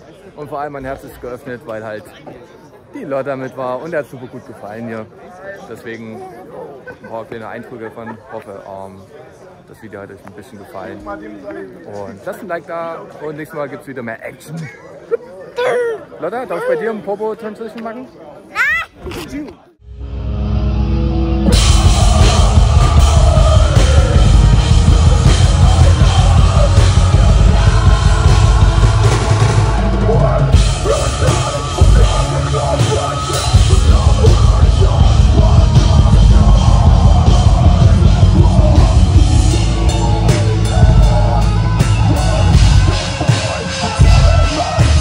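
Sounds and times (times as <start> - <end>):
heavy metal music: 19.9 - 45.0
pounding drum kit: 21.2 - 45.0.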